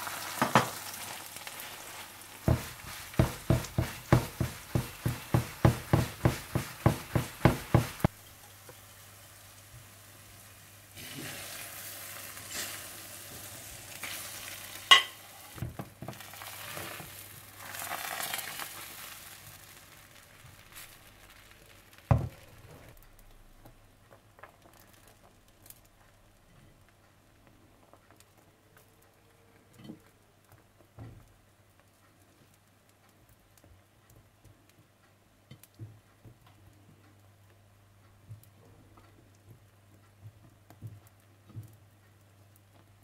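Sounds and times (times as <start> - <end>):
egg paratha sizzling in a pan: 0.0 - 23.0.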